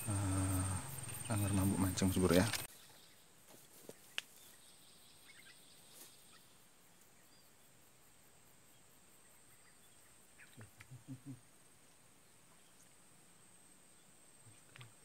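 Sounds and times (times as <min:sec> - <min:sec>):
high-pitched insect drone: 0:00.0 - 0:02.7
low pulses: 0:00.0 - 0:02.7
faint ticks: 0:14.5 - 0:15.0.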